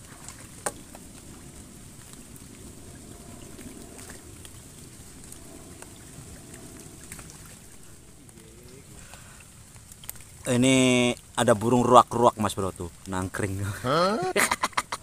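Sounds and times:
rain on a pond: 0:00.0 - 0:15.0.

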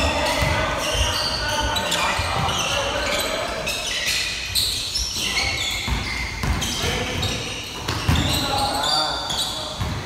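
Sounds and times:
ball bouncing on gym floor: 0:00.0 - 0:03.0, 0:05.2 - 0:08.6, 0:09.6 - 0:10.0
sneakers squeaking: 0:00.0 - 0:10.0.

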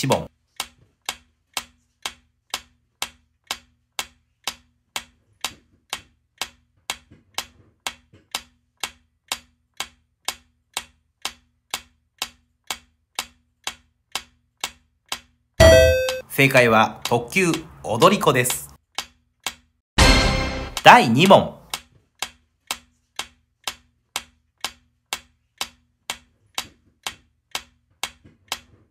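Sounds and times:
clock-like timer ticking: 0:00.0 - 0:28.7.

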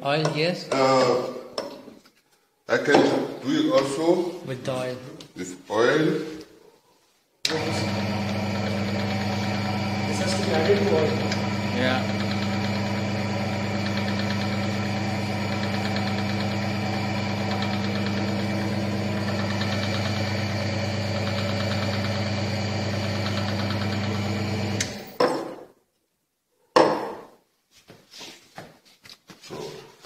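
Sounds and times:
electric motor humming: 0:07.5 - 0:25.2.

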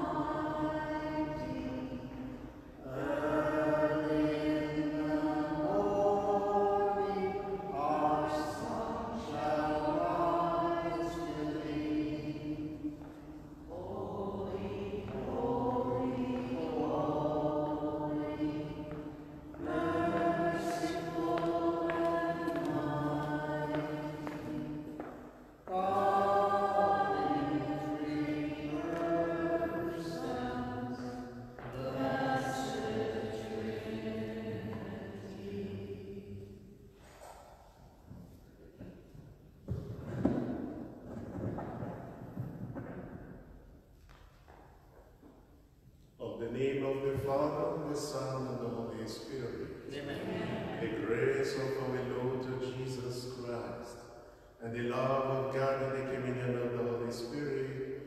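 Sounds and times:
hymn sung in long notes: 0:00.0 - 0:12.8, 0:13.7 - 0:25.0, 0:25.7 - 0:36.5.

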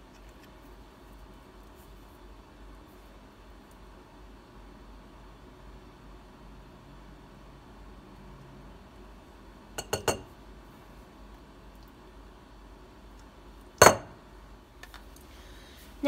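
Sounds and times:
metal spoon clinking on bowl: 0:09.8 - 0:10.3.

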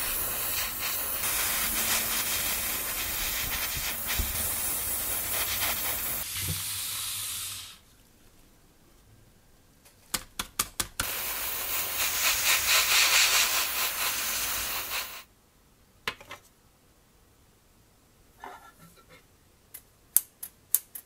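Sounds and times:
spray nozzle hissing: 0:00.0 - 0:07.8, 0:11.0 - 0:15.3.

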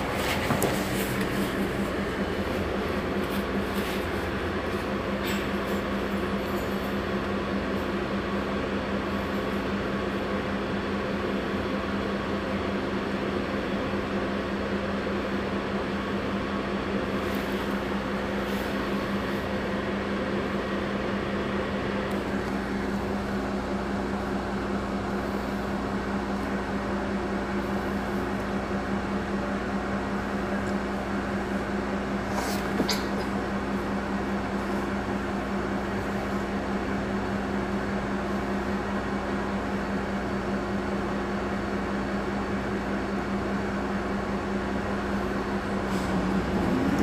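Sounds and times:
bus engine idling: 0:00.0 - 0:47.0.

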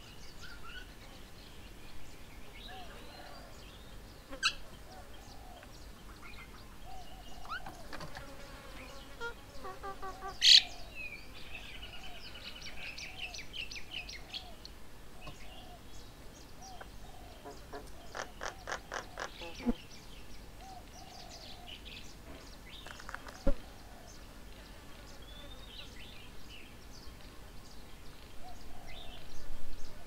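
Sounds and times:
birds calling and chirping: 0:00.0 - 0:30.0
bird chattering: 0:16.7 - 0:19.8.

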